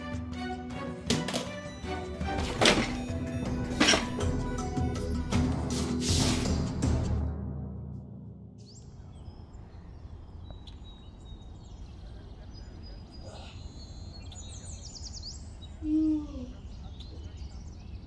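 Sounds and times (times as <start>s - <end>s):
small birds chirping: 8.6s - 18.0s.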